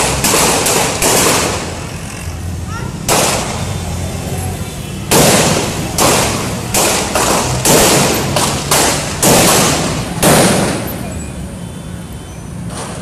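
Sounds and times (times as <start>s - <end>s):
gunshots with long echo: 0.0s - 1.8s, 5.1s - 10.8s.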